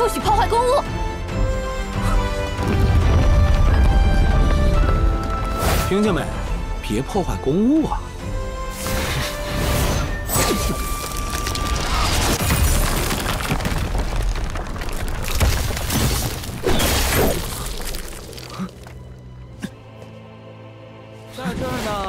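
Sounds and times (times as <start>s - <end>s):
dramatic music: 0.0s - 12.4s
shattering crashes: 10.3s - 18.6s.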